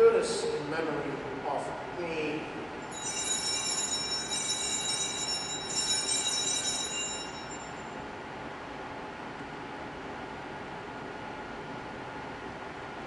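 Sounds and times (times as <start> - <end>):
shaken cluster of small bells: 2.9 - 7.8.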